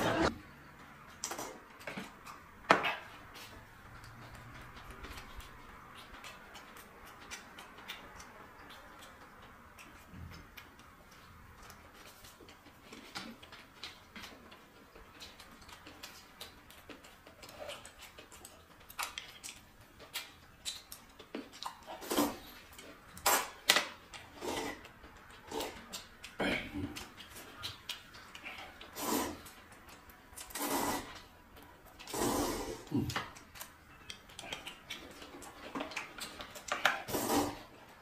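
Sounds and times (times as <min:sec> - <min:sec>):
chewing: 0:00.8 - 0:38.0
slurping noodles: 0:24.3 - 0:25.8, 0:28.9 - 0:29.5, 0:30.4 - 0:31.3, 0:32.0 - 0:33.1, 0:37.0 - 0:37.7
wet mouth clicks: 0:32.0 - 0:37.6.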